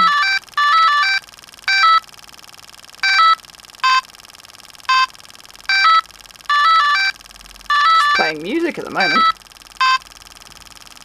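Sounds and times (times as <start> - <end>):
electronic jingles and beeps: 5.7 - 10.0.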